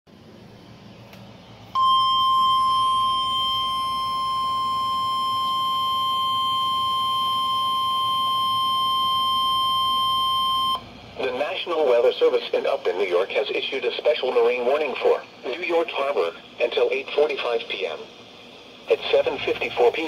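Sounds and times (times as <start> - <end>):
steady high alert tone: 1.8 - 10.8.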